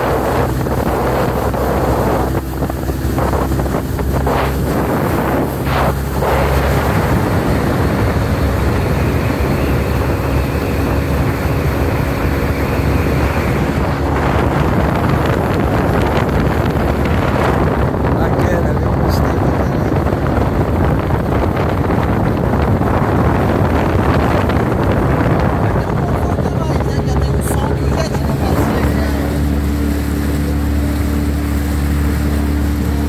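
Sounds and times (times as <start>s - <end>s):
boat engine running: 0.0s - 33.0s
water rushing along hull: 0.0s - 33.0s
wind buffeting microphone: 0.0s - 33.0s.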